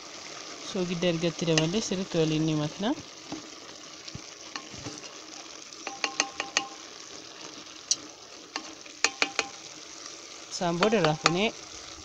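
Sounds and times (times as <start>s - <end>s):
food sizzling: 0.0s - 12.0s
wooden spoon stirring in pot: 0.3s - 12.0s
spoon knocking metal pot: 1.5s - 1.8s, 5.8s - 6.8s, 8.6s - 9.6s, 10.8s - 11.5s.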